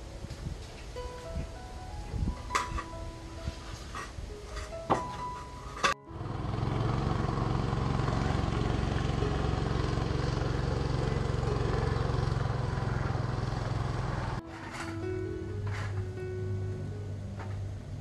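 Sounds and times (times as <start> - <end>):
boat engine running: 6.0 - 14.6.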